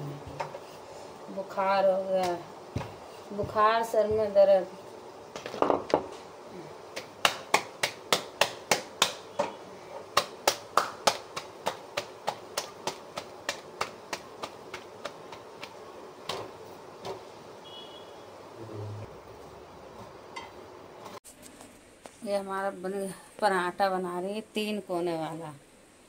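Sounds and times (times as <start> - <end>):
dough slapped between palms: 6.9 - 9.4, 10.1 - 16.5.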